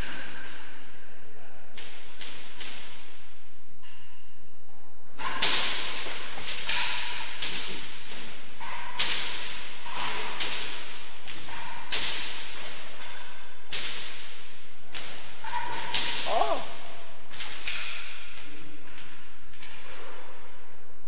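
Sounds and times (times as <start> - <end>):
ball cracking off rackets and walls: 5.2 - 20.4.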